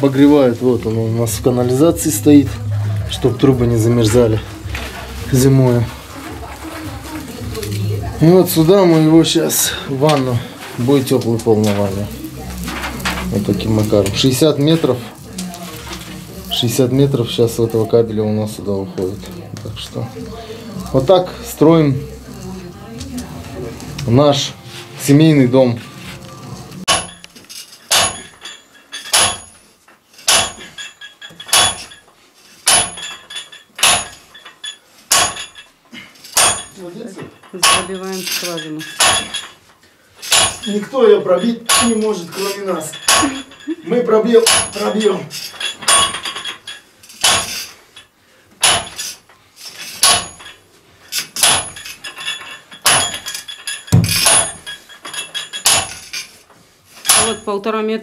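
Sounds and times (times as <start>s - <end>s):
hammer clanging on steel pipe: 26.9s - 27.3s, 27.9s - 29.6s, 30.2s - 32.0s, 32.6s - 34.3s, 35.1s - 35.6s, 36.4s - 36.8s, 37.6s - 38.1s, 40.3s - 40.8s, 41.4s - 42.2s, 44.4s - 45.0s, 50.0s - 50.6s, 51.4s - 51.9s, 57.1s - 57.5s
sledgehammer clanking on metal pipe: 26.9s - 35.7s, 36.3s - 39.6s, 40.2s - 43.6s, 44.4s - 46.6s, 47.2s - 47.8s, 48.6s - 49.2s, 49.8s - 50.6s, 51.2s - 56.3s, 57.0s - 57.6s.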